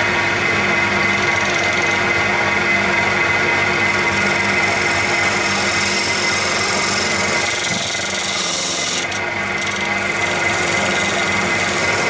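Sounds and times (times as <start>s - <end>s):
lathe motor hum: 0.0s - 12.0s
lathe tool scraping wood: 1.0s - 2.1s, 3.6s - 12.0s.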